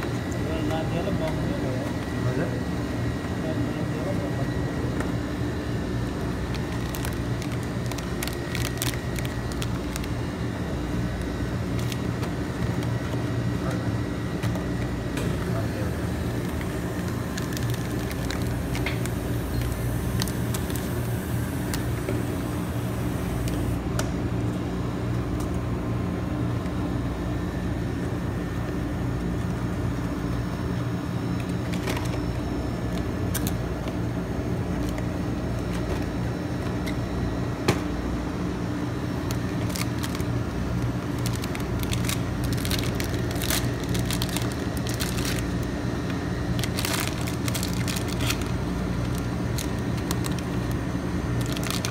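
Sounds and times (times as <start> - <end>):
low machine hum: 0.0 - 51.9
cardboard and plastic wrappers rustling: 6.4 - 10.2, 11.6 - 13.3, 16.2 - 21.1, 31.4 - 32.2, 39.2 - 51.9.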